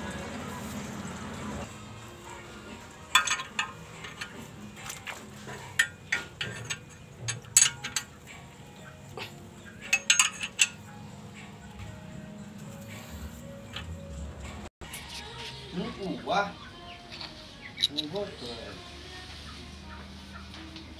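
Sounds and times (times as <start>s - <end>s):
metal tool clinking on engine: 3.0s - 8.8s, 9.6s - 11.8s.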